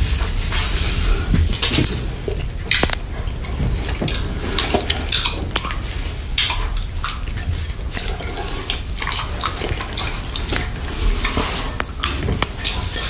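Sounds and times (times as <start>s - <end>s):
licking and slurping: 0.0s - 13.0s
wet mouth eating sounds: 0.0s - 13.0s
wet clicks and smacks: 1.8s - 4.2s.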